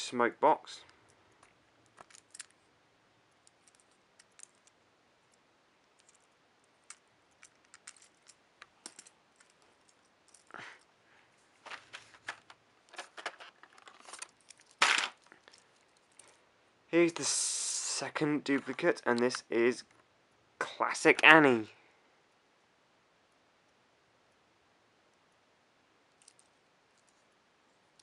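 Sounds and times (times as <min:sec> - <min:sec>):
light rustling of toy: 0:00.8 - 0:02.7, 0:03.3 - 0:16.5.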